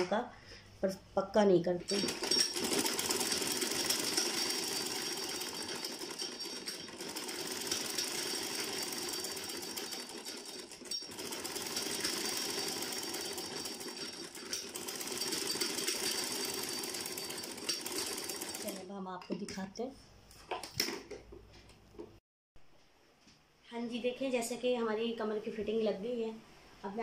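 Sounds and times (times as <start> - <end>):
sewing machine rattling: 1.9 - 18.9.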